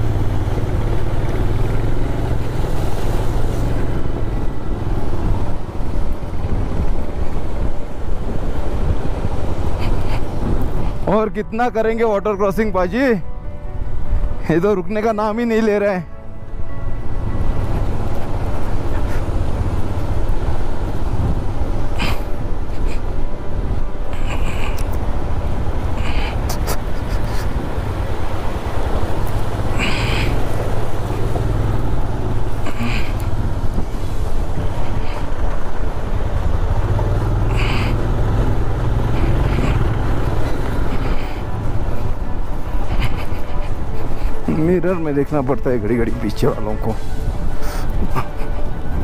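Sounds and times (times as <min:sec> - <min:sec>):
motorcycle engine running: 0:00.0 - 0:06.8, 0:24.2 - 0:44.2
wind buffeting microphone: 0:00.0 - 0:11.1, 0:16.5 - 0:44.6.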